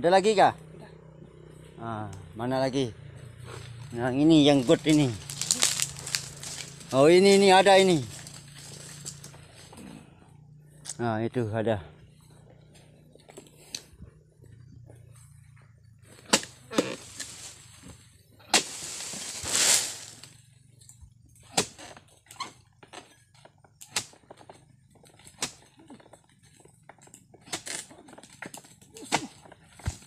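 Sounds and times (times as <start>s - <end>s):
chisel chopping palm fronds: 3.8s - 9.3s, 16.1s - 20.4s, 21.4s - 23.1s, 23.7s - 30.0s
rustling crash through leaves: 4.6s - 8.4s, 18.6s - 20.3s.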